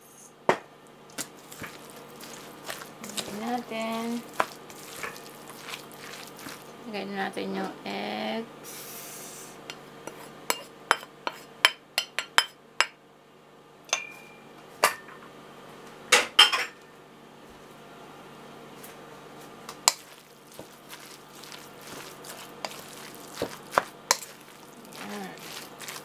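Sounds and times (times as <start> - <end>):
bowl clinking against steel bowl: 13.9 - 15.1
plastic spatula scraping bowl: 20.2 - 26.0.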